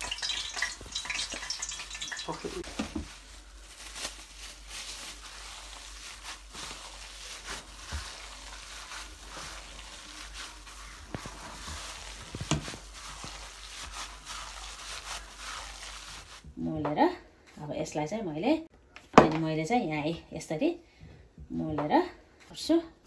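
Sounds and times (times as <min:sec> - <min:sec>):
plastic glove crinkling: 0:00.0 - 0:16.6
wet squishing of minced meat: 0:00.0 - 0:16.6.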